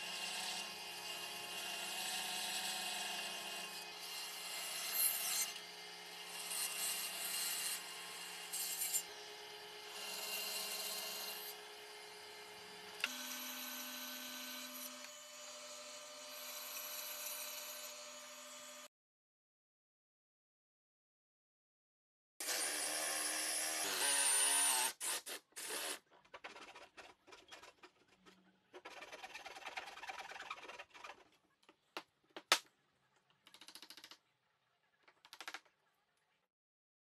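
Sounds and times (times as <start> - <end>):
band saw cutting wood: 0.0 - 18.9.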